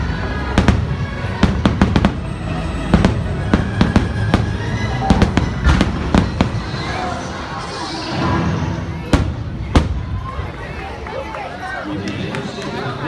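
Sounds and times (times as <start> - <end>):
music playing: 0.0 - 13.0
fireworks bursting: 0.3 - 10.4.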